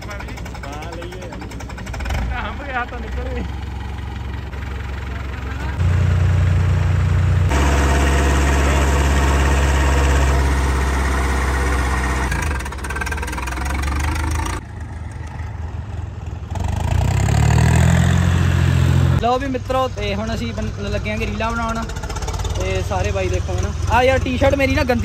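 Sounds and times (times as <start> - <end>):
tractor diesel engine revving: 0.0 - 14.6, 16.5 - 19.4.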